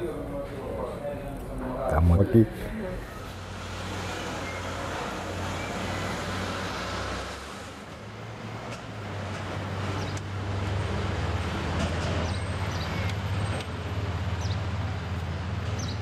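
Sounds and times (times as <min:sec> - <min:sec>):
cars passing: 0:01.9 - 0:16.0.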